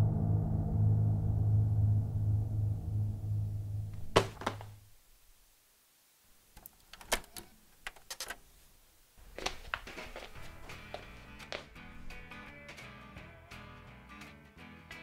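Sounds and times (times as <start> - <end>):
low drone: 0.0 - 4.0
faint steady hiss: 3.3 - 12.2.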